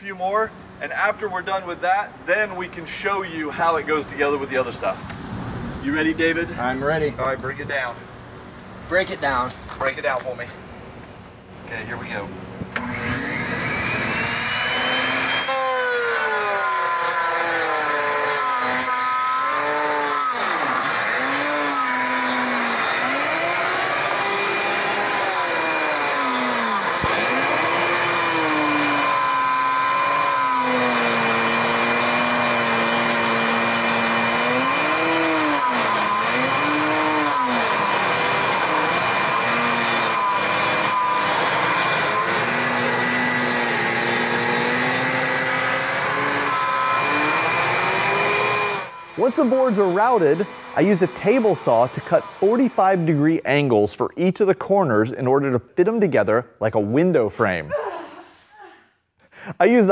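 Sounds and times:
shop vac running: 11.7s - 53.7s
router cutting wood: 12.8s - 53.5s.

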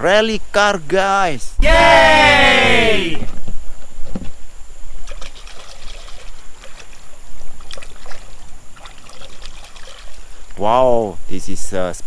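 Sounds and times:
river water washing: 5.0s - 10.6s.

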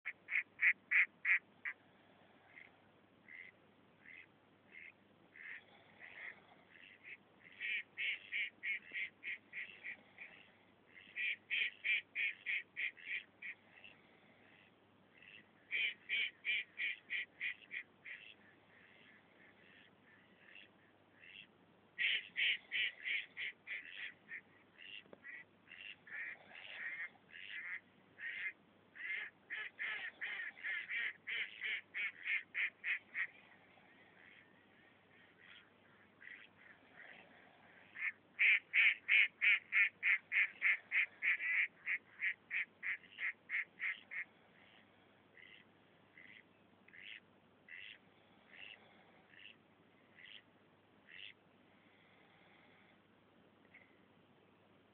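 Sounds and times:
duck quacking loudly: 0.0s - 1.8s, 3.3s - 13.9s, 14.6s - 33.4s, 37.8s - 44.8s, 45.4s - 45.6s, 46.2s - 49.5s, 50.2s - 50.4s, 51.1s - 51.4s.

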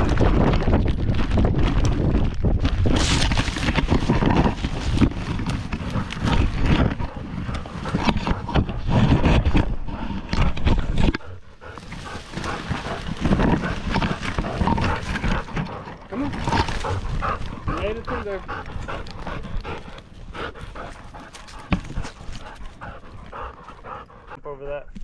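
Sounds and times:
branches and grass brushing camera: 0.0s - 24.4s
harness jostling: 0.0s - 24.4s
dog panting: 5.7s - 9.3s, 9.9s - 24.4s.

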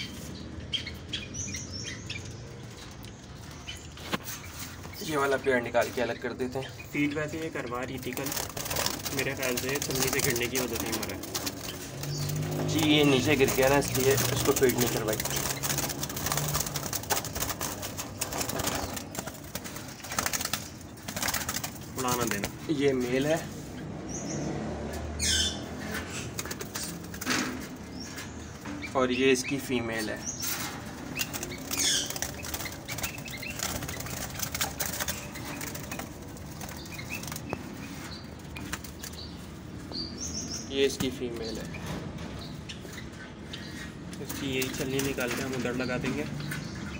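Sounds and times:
high bird chirps: 0.0s - 22.4s, 27.8s - 44.0s
wire cage clicking and rattling: 7.5s - 22.6s, 30.4s - 39.3s.

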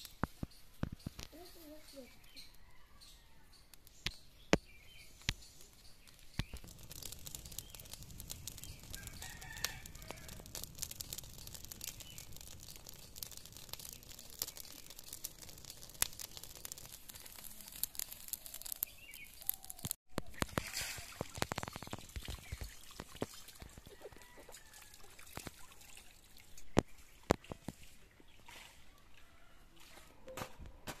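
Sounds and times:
burning straw crackling and popping: 0.0s - 28.4s
rooster crowing: 8.9s - 10.5s, 23.9s - 25.0s.

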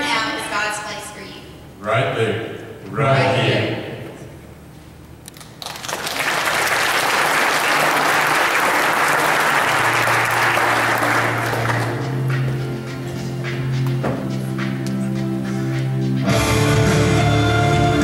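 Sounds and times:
audience applauding: 5.3s - 13.8s.

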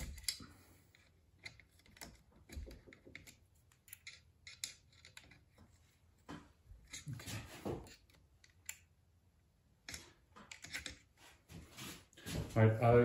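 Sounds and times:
hex key clicking and scraping: 0.0s - 6.0s, 9.8s - 11.1s.

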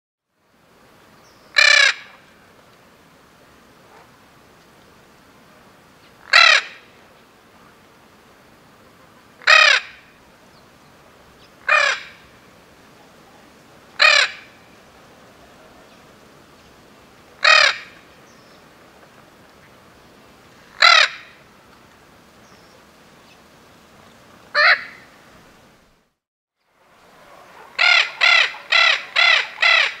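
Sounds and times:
macaw calling: 1.5s - 2.2s, 6.2s - 6.9s, 8.9s - 10.1s, 11.4s - 12.3s, 14.0s - 14.6s, 17.4s - 18.0s, 20.7s - 21.4s, 24.5s - 25.1s, 27.4s - 30.0s.

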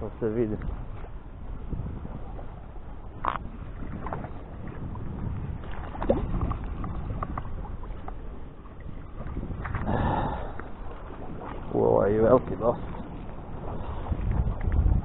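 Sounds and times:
sea water lapping: 0.0s - 15.0s
wind rumbling on microphone: 0.0s - 15.0s.

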